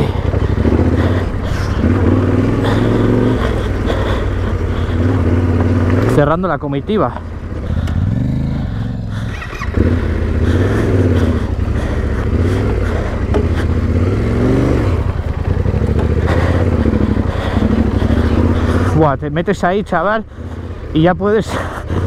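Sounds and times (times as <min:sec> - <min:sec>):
motorcycle engine revving: 0:00.0 - 0:22.0
knocks and clatter: 0:12.8 - 0:13.8.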